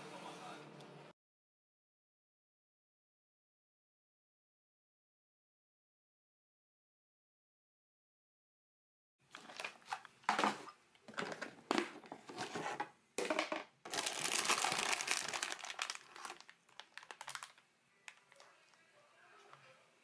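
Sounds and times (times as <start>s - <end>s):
plastic wrapper crinkling: 9.3s - 10.0s, 13.9s - 18.8s.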